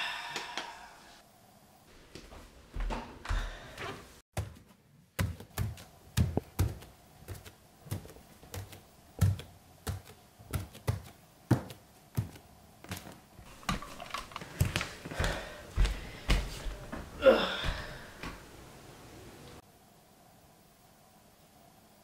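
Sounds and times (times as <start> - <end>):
bare footsteps on wooden stairs: 2.1 - 4.6, 5.2 - 18.5.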